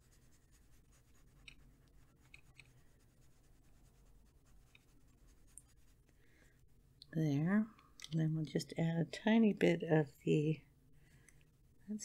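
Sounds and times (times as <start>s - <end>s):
pencil scratching on paper: 0.0s - 6.1s.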